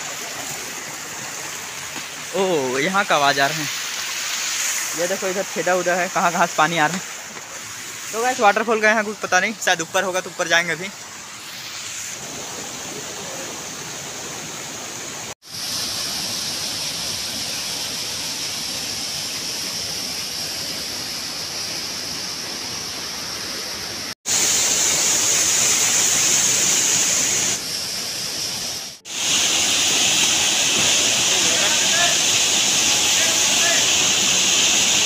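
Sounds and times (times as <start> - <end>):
waterfall rushing: 0.0 - 15.4, 29.0 - 35.0.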